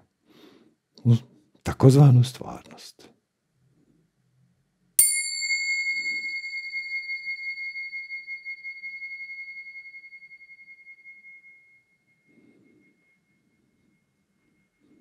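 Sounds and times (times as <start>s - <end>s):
small cymbals ringing: 5.0s - 15.0s.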